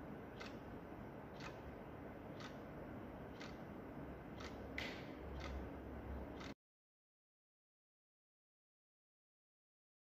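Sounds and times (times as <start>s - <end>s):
wall clock ticking: 0.3s - 0.6s, 1.3s - 1.7s, 2.3s - 3.6s, 4.3s - 5.7s, 6.3s - 6.6s.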